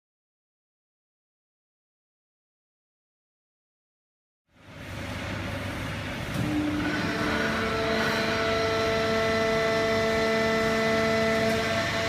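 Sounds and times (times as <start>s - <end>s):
baler and conveyor mechanical drone: 4.5s - 12.0s
steady multi-tone whine: 4.5s - 12.0s.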